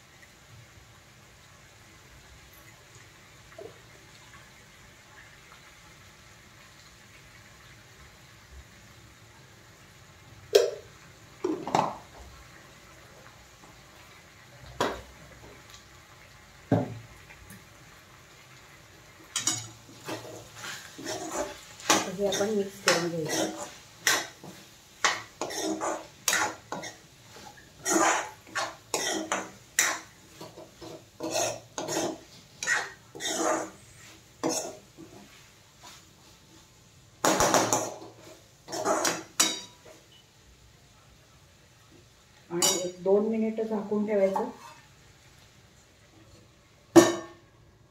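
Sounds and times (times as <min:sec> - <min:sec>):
metal spoon scraping a pan: 0:19.3 - 0:36.0, 0:37.5 - 0:40.2, 0:44.3 - 0:44.9.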